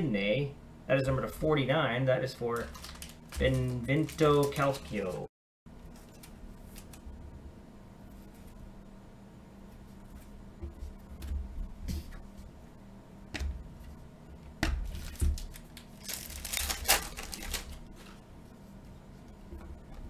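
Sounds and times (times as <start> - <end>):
foil pack tearing and crinkling: 2.6 - 4.8, 14.9 - 17.9.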